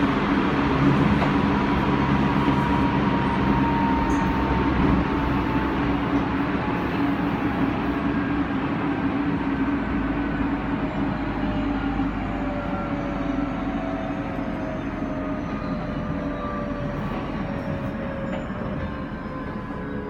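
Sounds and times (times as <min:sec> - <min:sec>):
train motors humming: 0:00.0 - 0:20.0
wheels rumbling on rail: 0:00.0 - 0:20.0.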